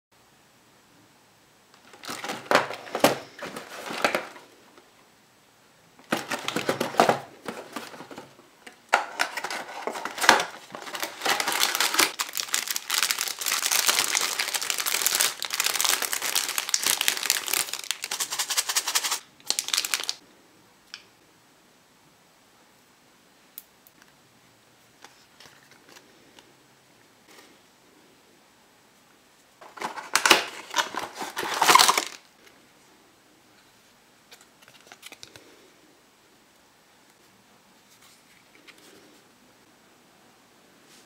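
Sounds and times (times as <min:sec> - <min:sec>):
plastic packaging crinkling: 0:01.8 - 0:04.4, 0:06.0 - 0:20.2, 0:29.6 - 0:32.3.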